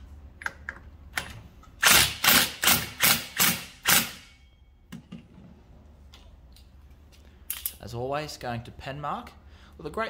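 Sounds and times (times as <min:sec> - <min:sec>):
impact driver bursts: 0:01.8 - 0:04.4.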